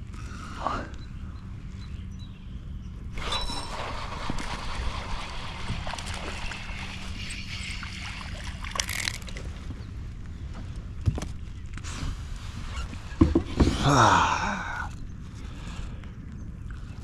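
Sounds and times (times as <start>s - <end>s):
water splashing and trickling: 3.2s - 9.9s.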